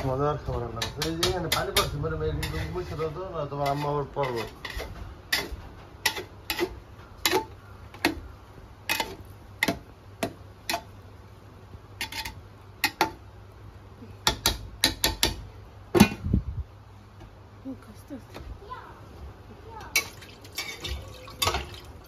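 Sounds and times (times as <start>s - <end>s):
spatula scraping aluminium pot: 0.7s - 8.1s, 12.0s - 13.0s.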